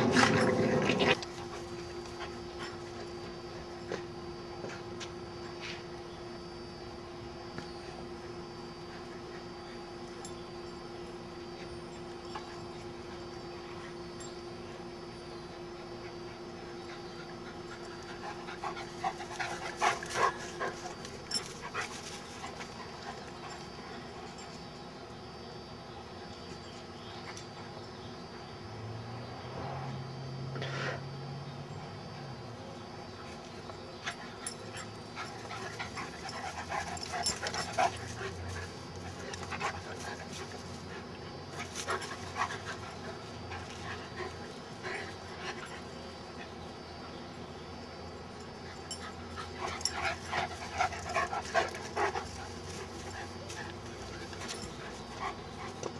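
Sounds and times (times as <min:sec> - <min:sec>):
dogs panting and huffing: 0:00.0 - 0:06.6, 0:11.2 - 0:24.7, 0:33.3 - 0:55.9.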